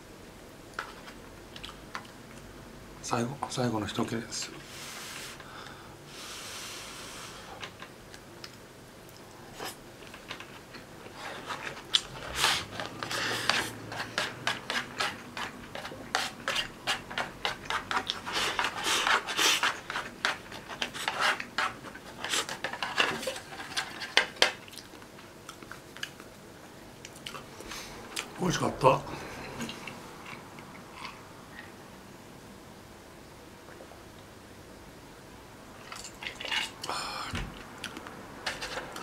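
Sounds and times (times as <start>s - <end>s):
chopsticks scraping plastic container: 9.6s - 24.4s.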